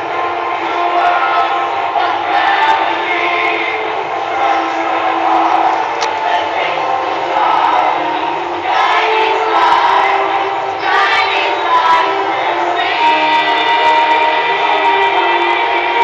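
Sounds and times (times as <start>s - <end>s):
audience crowd noise: 0.0s - 16.0s
loud music with group singing: 0.0s - 16.0s.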